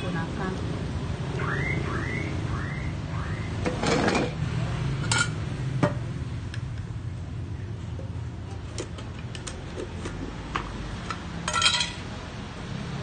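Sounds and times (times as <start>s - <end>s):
tin scraping: 3.7s - 4.4s.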